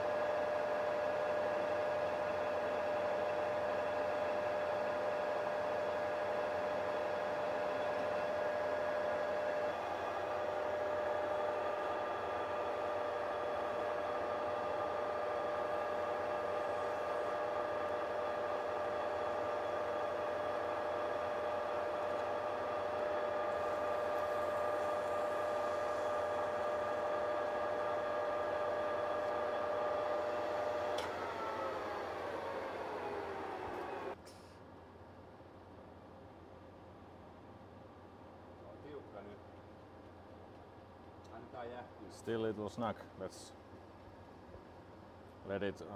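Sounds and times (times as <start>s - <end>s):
metal lathe motor whine: 0.0s - 34.2s.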